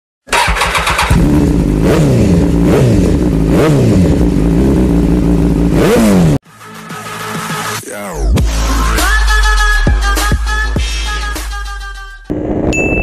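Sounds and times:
engine idling and revving: 0.3s - 6.4s.

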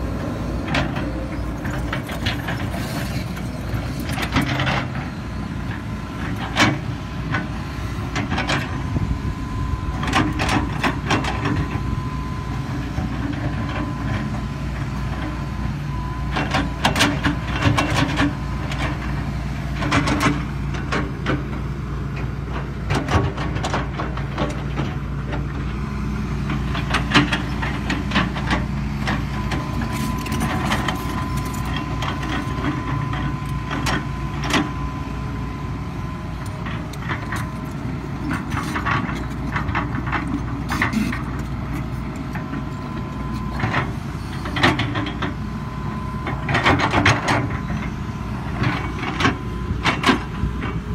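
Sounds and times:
excavator diesel engine running: 0.0s - 50.9s.

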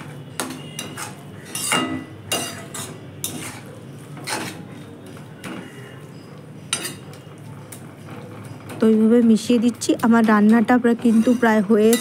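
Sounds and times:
metal spatula scraping pan: 0.0s - 4.8s, 6.7s - 7.1s, 10.9s - 12.0s.

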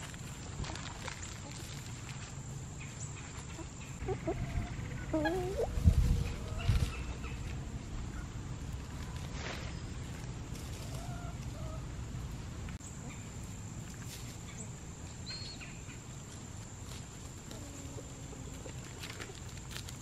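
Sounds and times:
leaves rustling: 0.0s - 20.0s
hen calls: 3.5s - 7.4s.

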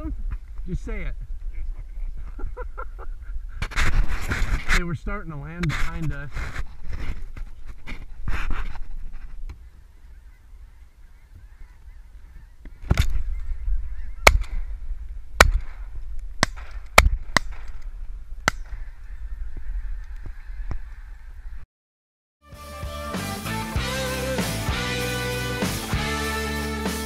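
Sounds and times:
geese honking overhead: 9.6s - 12.9s, 18.7s - 21.6s.

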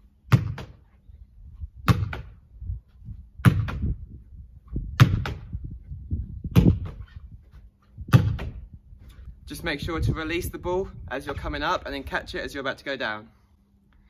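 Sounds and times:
ball striking brick wall: 0.3s - 0.8s, 1.8s - 2.4s, 3.4s - 4.0s, 4.9s - 5.6s, 6.5s - 7.1s, 8.1s - 8.6s.

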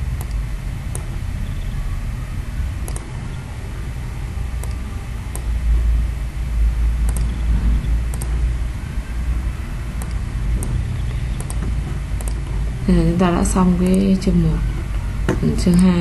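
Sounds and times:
low steady rumble: 0.0s - 16.0s
faint computer mouse clicks: 7.1s - 7.4s.

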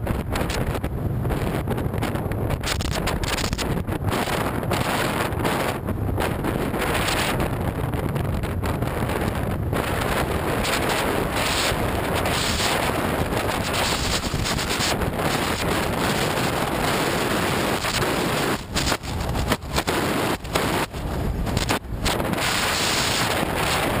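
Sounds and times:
vehicle noise: 0.0s - 24.0s
wind rushing over microphone: 0.0s - 24.0s.

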